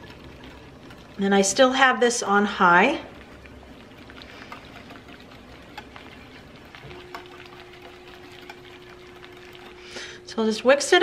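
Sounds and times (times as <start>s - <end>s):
faint steady hum: 0.0s - 11.0s
whisk stirring soup: 0.0s - 11.0s
whisk wires clicking on crock: 3.2s - 9.9s.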